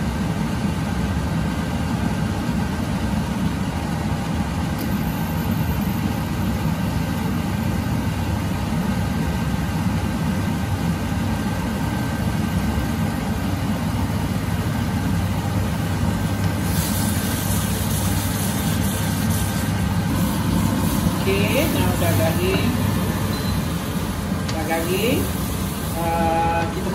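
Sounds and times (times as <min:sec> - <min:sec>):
low mechanical hum: 0:00.0 - 0:26.9
bright hiss: 0:16.2 - 0:26.9.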